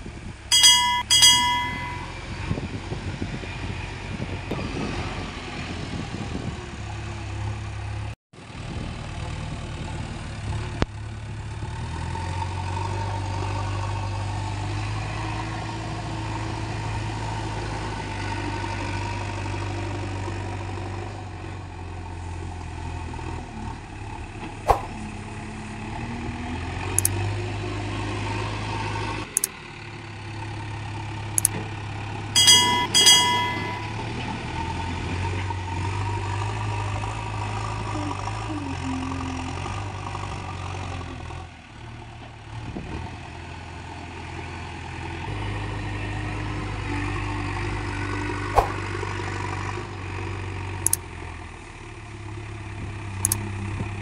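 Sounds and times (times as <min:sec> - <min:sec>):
high beeps: 0:00.5 - 0:02.1, 0:32.4 - 0:33.9.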